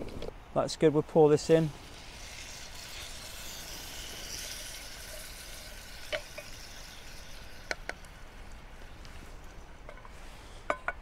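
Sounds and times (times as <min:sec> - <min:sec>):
liquid sizzling in hot oil: 0:01.7 - 0:09.6.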